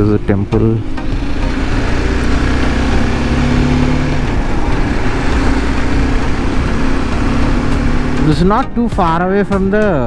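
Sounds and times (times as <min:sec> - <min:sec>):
motorcycle engine cruising: 0:00.0 - 0:09.8.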